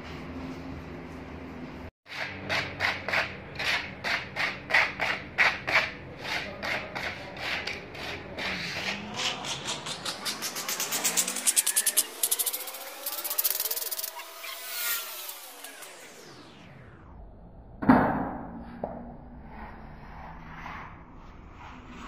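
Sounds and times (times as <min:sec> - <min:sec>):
trowel scraping plaster: 0:02.1 - 0:15.9.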